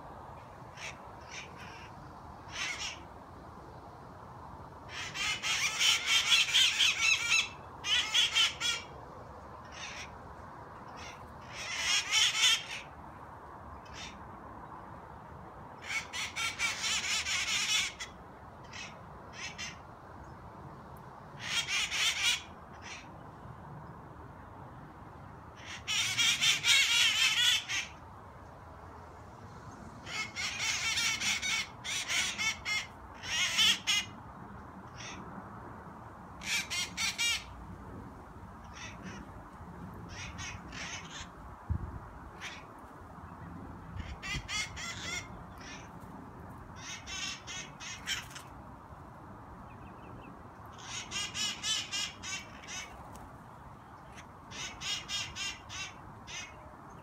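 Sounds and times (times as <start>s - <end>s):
parrots squawking: 2.5s - 3.0s, 4.9s - 8.9s, 10.9s - 12.9s, 21.4s - 23.1s, 25.6s - 28.0s, 30.0s - 34.1s, 36.4s - 37.5s, 38.7s - 39.3s, 40.1s - 41.3s, 44.0s - 45.9s, 46.8s - 48.5s, 50.8s - 53.0s, 54.1s - 56.6s.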